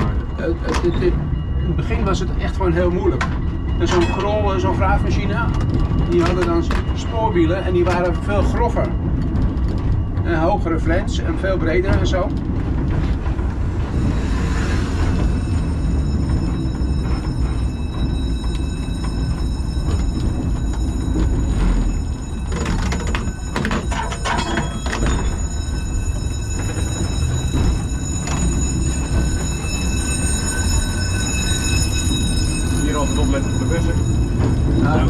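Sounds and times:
tram wheels rumbling on rails: 0.0 - 35.0
clicks and knocks: 22.4 - 25.6.

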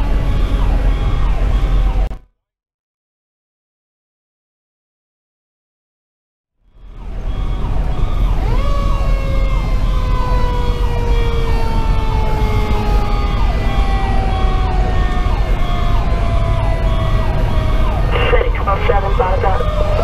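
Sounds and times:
diesel engine rumble: 6.7 - 20.0
electronic siren yelping: 6.8 - 20.0.

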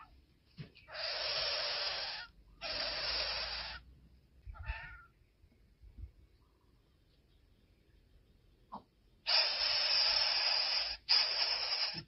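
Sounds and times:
nestling bird hissing: 0.8 - 3.9, 9.2 - 12.0.

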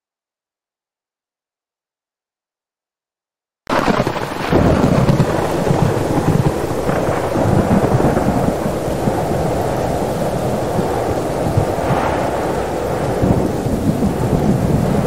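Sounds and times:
heavy rain: 3.7 - 15.0
low rolling thunder: 3.7 - 15.0.

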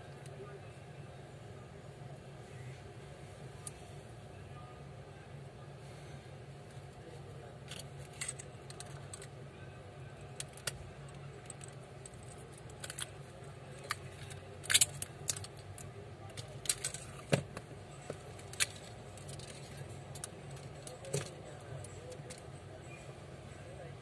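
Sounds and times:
low steady hum: 0.0 - 24.0
phone parts clicking and clacking: 7.6 - 9.4, 10.3 - 22.5.

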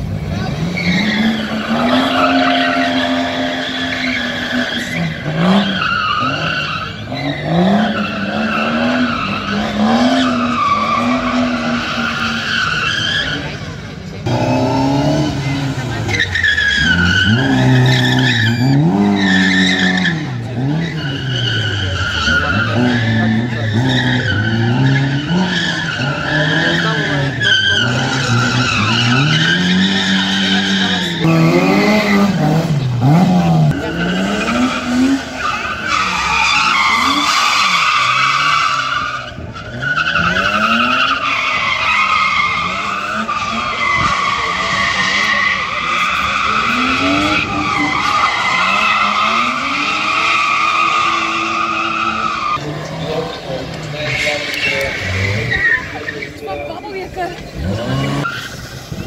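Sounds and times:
car engine revving: 0.0 - 59.0
tyres squealing: 0.5 - 59.0.

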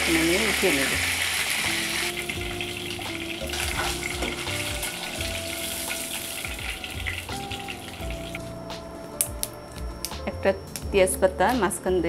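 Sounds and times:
fish sizzling in hot oil: 0.0 - 8.6.

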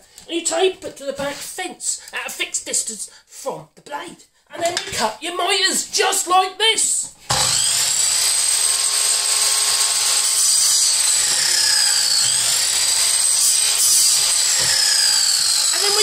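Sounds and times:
mitre saw cutting wood: 7.3 - 16.0.

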